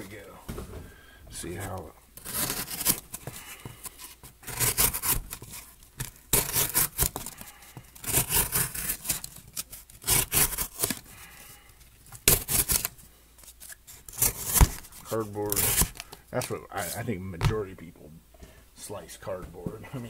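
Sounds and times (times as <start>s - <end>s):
knife slicing cardboard: 2.2s - 3.4s, 4.4s - 11.0s, 12.2s - 12.9s, 14.1s - 16.0s.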